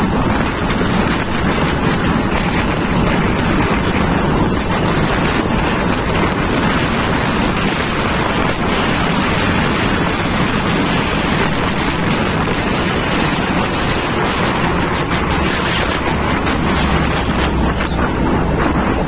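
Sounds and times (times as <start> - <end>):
road traffic rumble: 0.0 - 19.0
wind buffeting microphone: 0.0 - 19.0.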